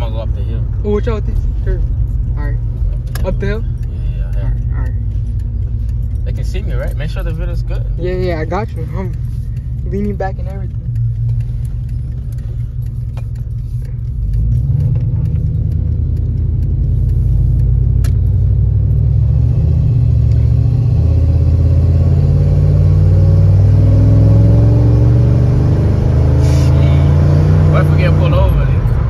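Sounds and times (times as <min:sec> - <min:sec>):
truck engine accelerating: 0:00.0 - 0:29.0.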